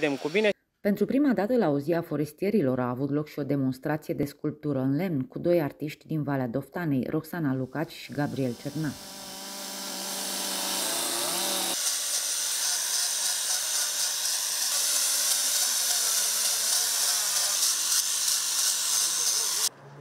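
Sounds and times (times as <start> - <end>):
electric grinders sanding wood: 7.8 - 19.7.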